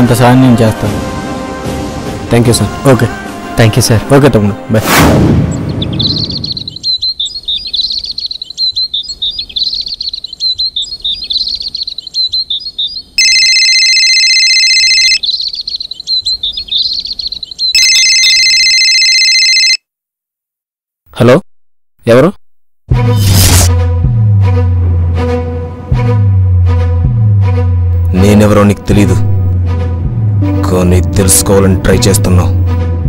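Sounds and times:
birds chirping: 5.4 - 13.6, 14.9 - 18.4
mobile phone ringtone: 13.2 - 15.3, 17.7 - 19.9.

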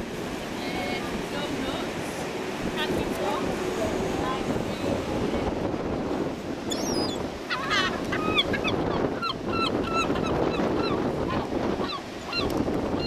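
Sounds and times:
wind on microphone: 0.0 - 13.0
gulls calling: 6.6 - 13.0.

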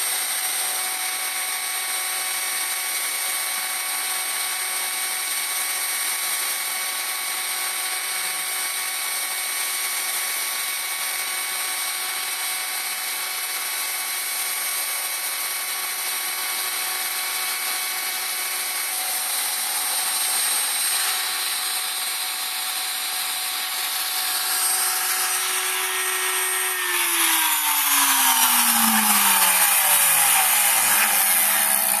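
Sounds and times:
router spindle high whine: 0.0 - 32.0
end mill cutting plywood: 16.6 - 32.0
falling tones: 24.2 - 32.0.

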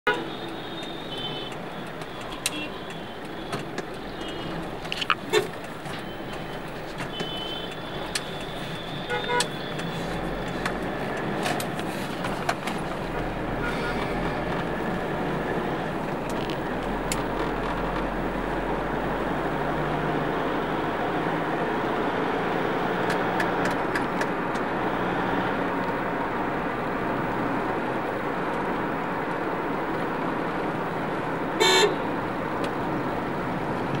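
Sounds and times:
road and engine noise: 0.0 - 34.0
vehicle horn blast: 7.1 - 7.8, 9.0 - 9.7, 13.6 - 14.2, 31.6 - 32.1.

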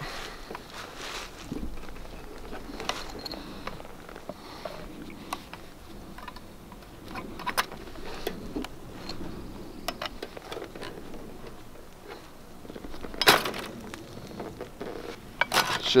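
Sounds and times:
wire crunching scrape: 0.0 - 16.0.

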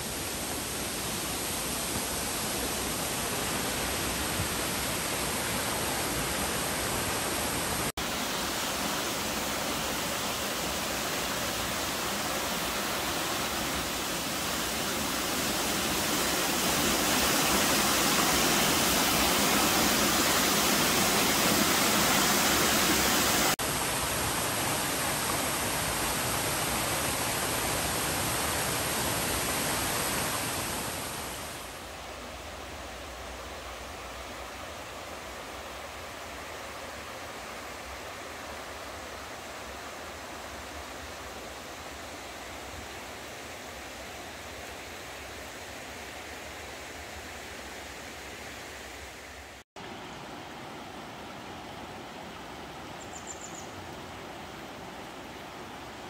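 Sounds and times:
waterfall rushing: 0.0 - 33.4.

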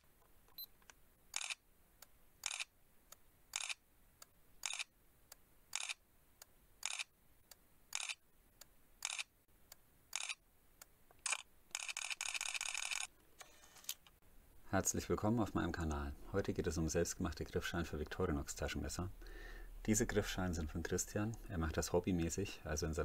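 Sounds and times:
camera shutter clicks: 1.4 - 1.6, 2.4 - 2.7, 3.6 - 3.8, 4.6 - 4.9, 5.7 - 6.0, 6.8 - 7.1, 7.9 - 8.2, 9.0 - 9.3, 10.1 - 10.4, 11.2 - 14.0.

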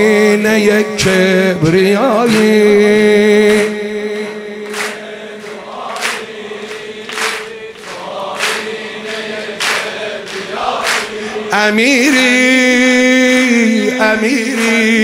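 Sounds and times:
crowd clapping in slow beat: 2.2 - 15.0
crowd chanting a held note: 4.6 - 12.4.

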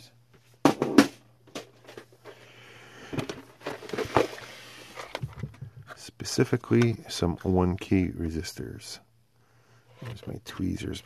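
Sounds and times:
low steady hum: 0.0 - 11.0
parts and tools rustling and clattering: 0.4 - 6.0.

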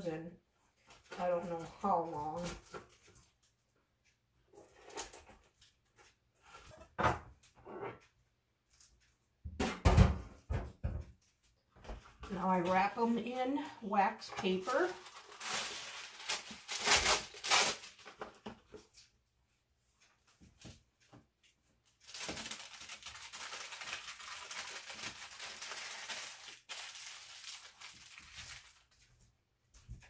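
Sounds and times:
paper crinkling: 14.4 - 19.0, 21.9 - 29.2
wax paper ripping: 14.5 - 18.1, 22.1 - 29.0.

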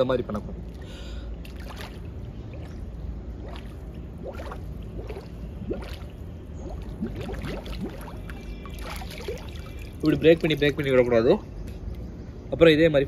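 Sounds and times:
steady low rumble: 0.0 - 13.0
water sloshing: 0.5 - 11.2
bubbles gurgling underwater: 3.4 - 9.8.

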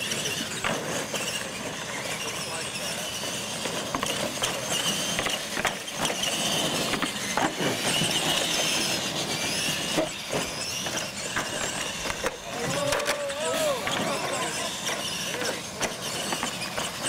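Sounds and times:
toy truck motors whining: 0.0 - 17.0.

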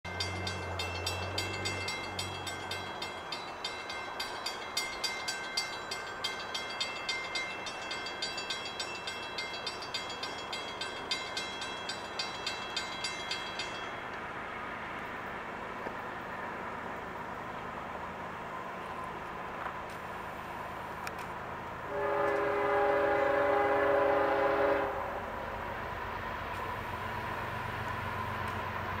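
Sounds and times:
railroad warning bell ringing: 0.0 - 14.8, 21.9 - 25.4.

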